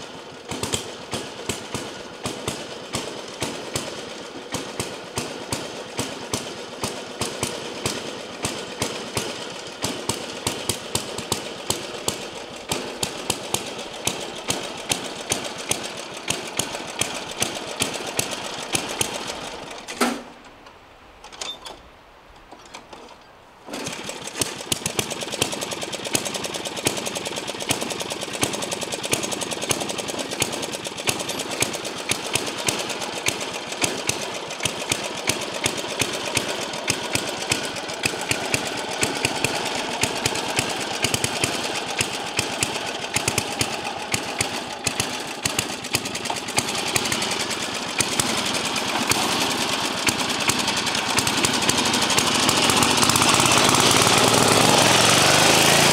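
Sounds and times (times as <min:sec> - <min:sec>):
riding lawn mower engine: 0:00.0 - 0:21.8, 0:22.4 - 0:55.9.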